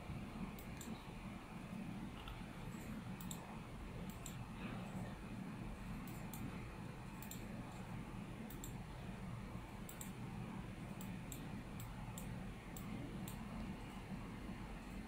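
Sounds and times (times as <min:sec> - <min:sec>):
low room hum: 0:00.0 - 0:15.0
computer mouse clicks: 0:00.5 - 0:01.0, 0:02.2 - 0:04.4, 0:06.0 - 0:06.6, 0:07.2 - 0:08.8, 0:09.8 - 0:10.2, 0:10.9 - 0:13.5.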